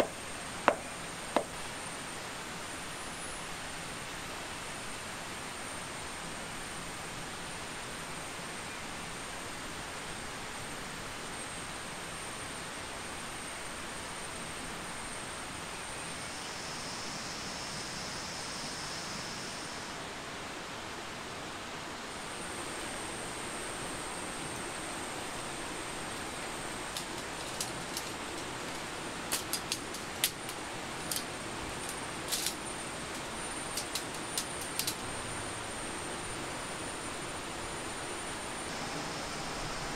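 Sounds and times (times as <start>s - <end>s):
tent pole sections clicking: 0.0s - 1.6s, 26.0s - 35.2s
river water rushing: 20.2s - 39.9s
thin high whine: 22.2s - 39.9s.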